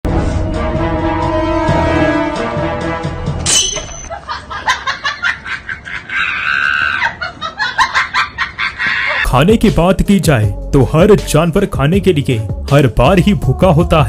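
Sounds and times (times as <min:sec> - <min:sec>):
background music: 0:00.1 - 0:04.3, 0:09.2 - 0:14.0
squeal of laughter: 0:04.1 - 0:09.3
people laughing: 0:04.1 - 0:09.4.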